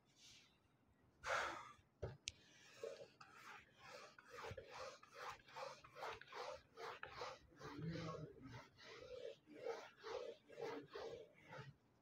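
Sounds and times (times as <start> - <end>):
duster wiping a whiteboard: 2.4 - 11.8.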